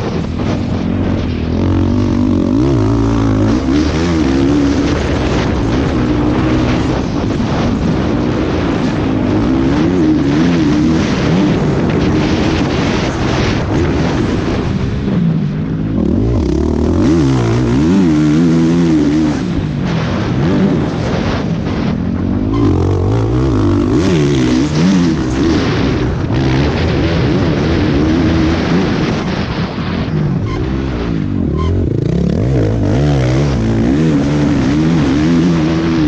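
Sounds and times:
motocross bike engine revving: 0.0 - 36.0
steady rush of noise: 0.0 - 36.0.

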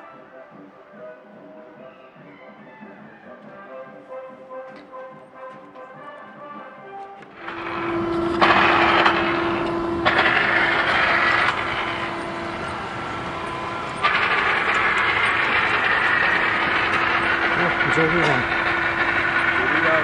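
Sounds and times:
construction machinery noise: 7.3 - 20.0.

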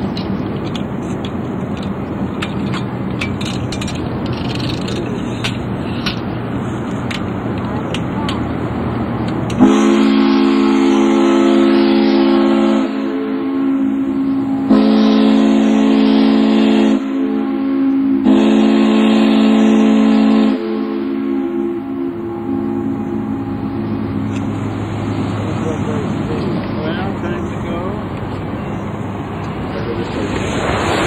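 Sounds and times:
ship's steam whistle blasts: 9.6 - 24.2.

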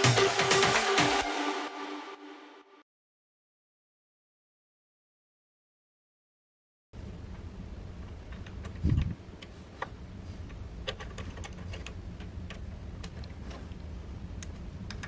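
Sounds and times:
steady low hum: 7.0 - 15.0.

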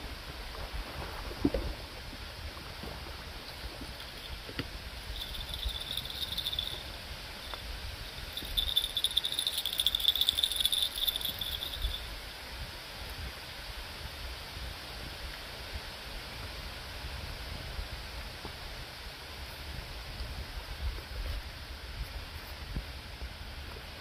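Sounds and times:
low rush of water and wind: 0.0 - 24.0
insect trilling: 5.0 - 12.1.

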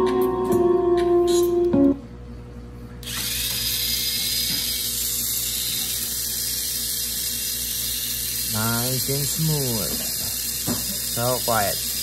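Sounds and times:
small electric motor whirring: 3.0 - 12.0.

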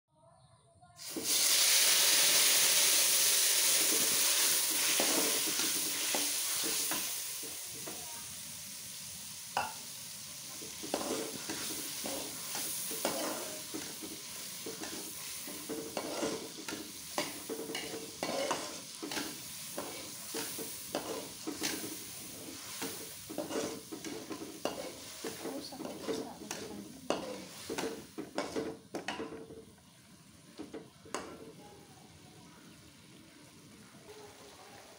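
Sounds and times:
paste sizzling in hot oil: 1.0 - 33.8
metal spatula scraping wok: 3.6 - 7.5, 10.6 - 29.4.

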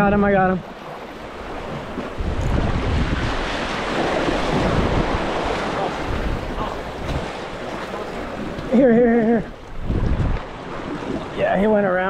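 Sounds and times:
sea waves splashing on boulders: 0.6 - 12.0
wind rumbling on microphone: 1.3 - 8.7, 9.4 - 11.5.

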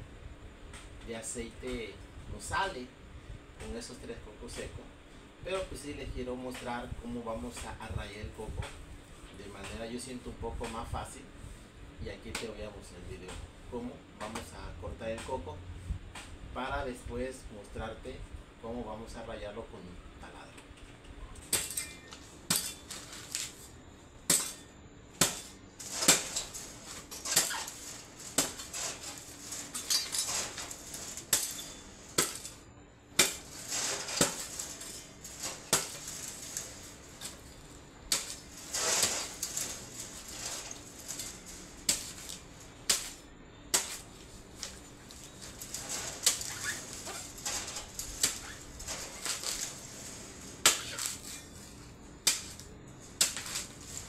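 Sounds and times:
scraping coconut husk: 22.1 - 32.6, 33.2 - 54.0.

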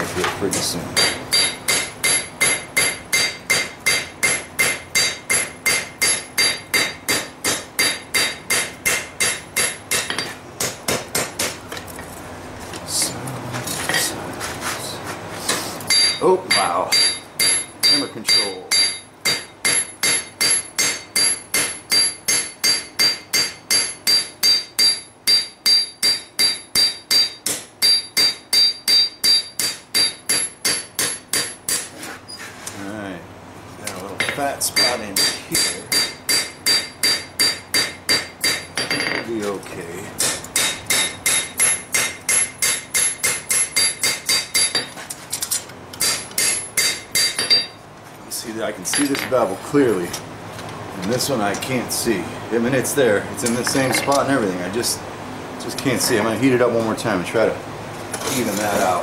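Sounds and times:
hammer striking steel on anvil: 1.0 - 11.6, 15.9 - 31.9, 34.2 - 39.3, 40.2 - 45.0, 46.0 - 47.8.

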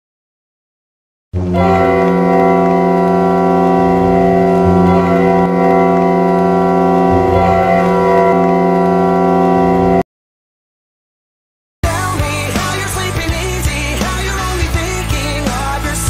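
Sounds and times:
goal horn chord: 1.4 - 10.0.

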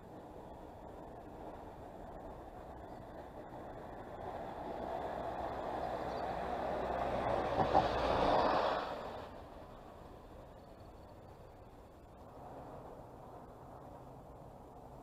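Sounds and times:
vehicle passing: 4.4 - 9.9.

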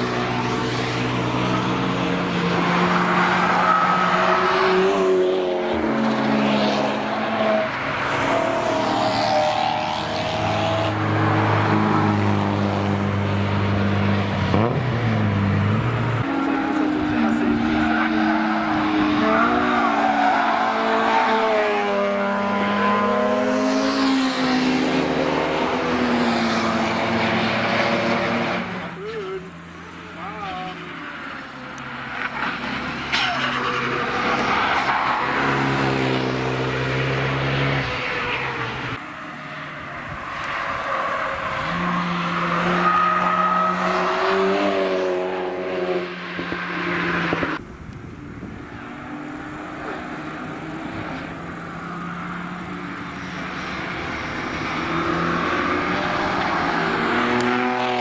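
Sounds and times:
racing cars passing at speed: 0.0 - 58.0
motorcycle engine: 16.0 - 23.0, 27.8 - 34.9, 49.2 - 58.0.

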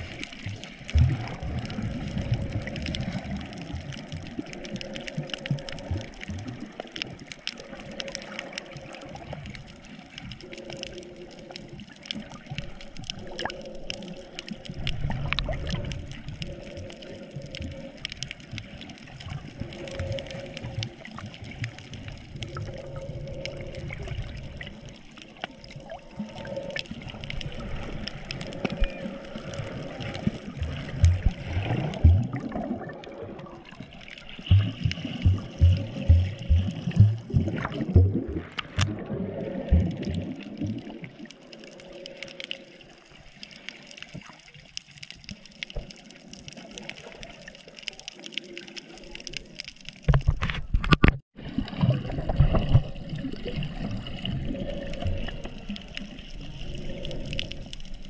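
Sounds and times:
dense crackling clicks: 0.0 - 58.0
water gurgling and bubbling: 0.0 - 58.0
low thumps: 34.5 - 38.4.

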